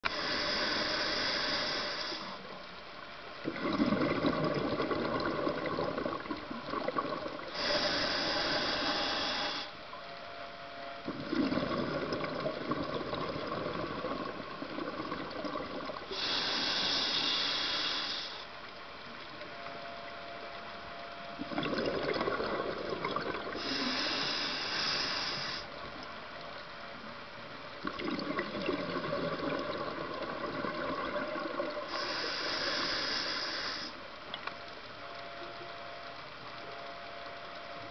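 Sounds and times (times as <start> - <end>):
regulator inhale hiss: 0.0 - 2.6, 7.5 - 9.8, 16.0 - 18.6, 23.5 - 25.8, 31.8 - 34.1
exhaled bubbles rushing: 3.4 - 7.5, 11.1 - 16.1, 21.4 - 23.6, 27.8 - 31.9.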